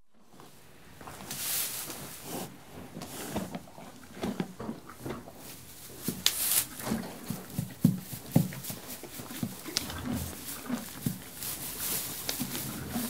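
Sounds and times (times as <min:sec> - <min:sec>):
horse crunching hay: 0:00.4 - 0:13.0
hay rustling: 0:01.1 - 0:02.5, 0:05.4 - 0:07.3, 0:08.0 - 0:13.0.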